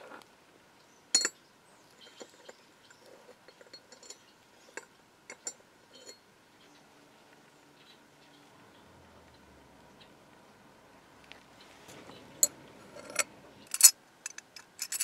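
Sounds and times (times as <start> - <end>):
key clicking in metal lock: 13.0 - 15.0
sharp metal clink: 13.0 - 15.0.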